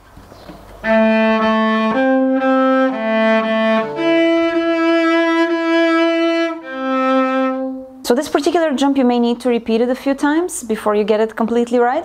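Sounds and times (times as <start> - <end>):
cello bowed melody: 0.8 - 8.1.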